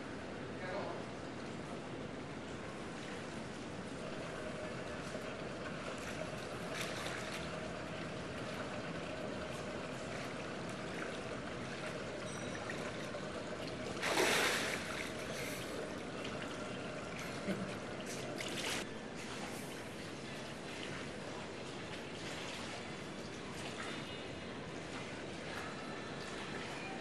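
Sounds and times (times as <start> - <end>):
pool water lapping and sloshing: 0.0 - 27.0
person wading through water: 2.7 - 25.6
loud water splash: 13.9 - 15.7.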